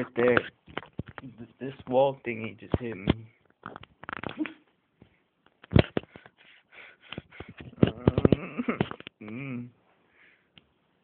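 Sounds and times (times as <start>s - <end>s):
camera being bumped and handled: 0.4s - 1.3s, 2.7s - 4.4s.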